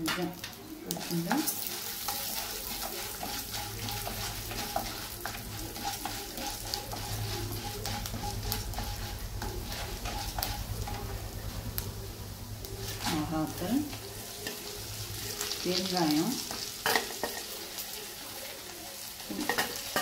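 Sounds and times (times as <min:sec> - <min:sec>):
seeds sizzling and popping in oil: 0:00.0 - 0:20.0
wooden spatula scraping pan: 0:00.9 - 0:11.2, 0:12.8 - 0:13.6.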